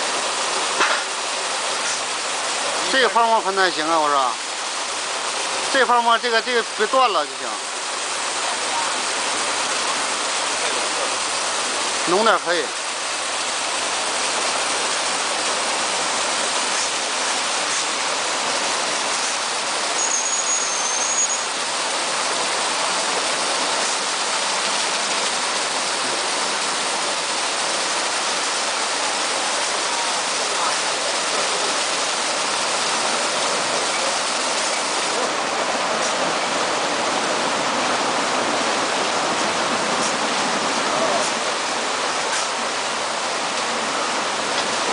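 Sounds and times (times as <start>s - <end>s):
car wash water spraying: 0.0s - 44.9s
high thin whistle: 20.0s - 21.5s.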